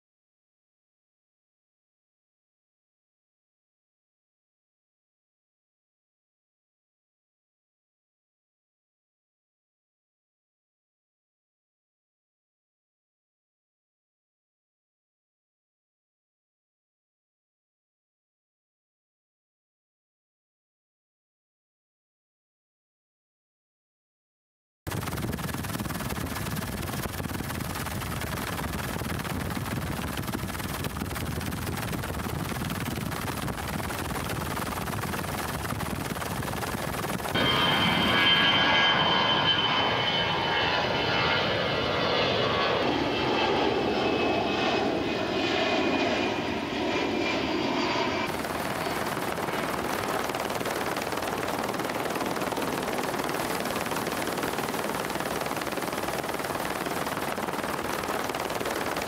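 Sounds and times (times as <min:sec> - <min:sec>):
steady rushing noise: 0:24.9 - 0:38.7, 0:48.3 - 0:59.0
jet engine whine: 0:24.9 - 0:59.0.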